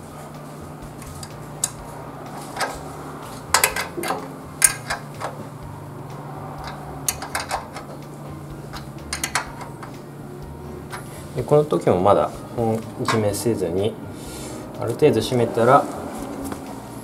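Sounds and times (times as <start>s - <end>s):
spanner clicking on metal: 3.5s - 5.4s, 6.6s - 8.0s, 8.7s - 10.0s.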